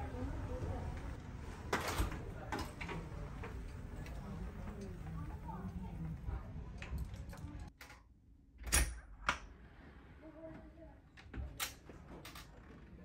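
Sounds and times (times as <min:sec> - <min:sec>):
door latch and handle clicks: 0:08.6 - 0:09.4.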